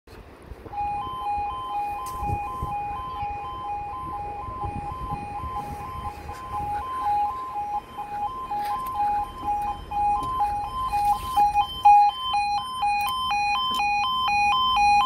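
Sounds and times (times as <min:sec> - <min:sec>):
two-tone level crossing alarm: 0:00.7 - 0:15.0.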